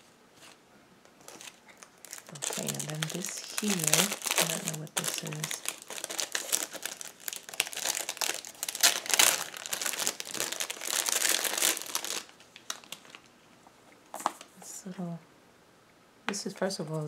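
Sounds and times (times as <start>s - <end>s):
wrapping paper crinkling: 1.2s - 13.3s.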